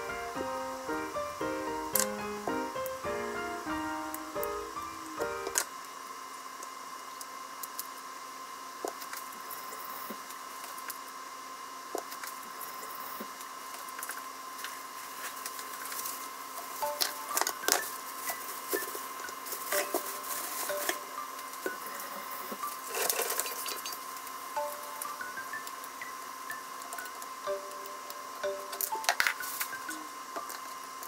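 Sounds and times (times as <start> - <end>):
water heating in a frying pan: 22.6 - 27.4.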